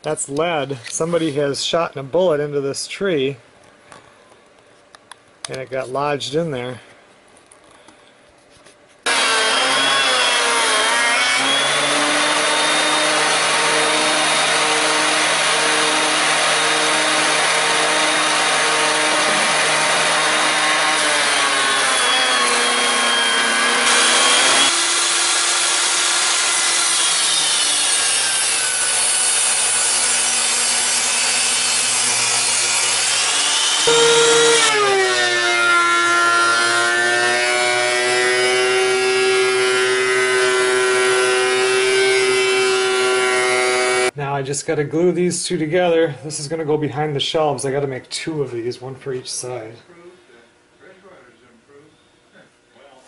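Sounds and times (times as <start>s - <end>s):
jointer planing wood: 9.1s - 44.1s
thickness planer running: 9.1s - 44.1s.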